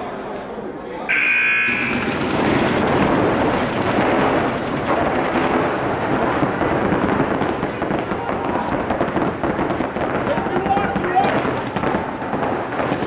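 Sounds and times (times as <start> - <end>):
brief high tone: 1.1 - 2.1
paintball markers firing rapidly: 1.7 - 6.6, 10.6 - 11.9, 12.7 - 13.0.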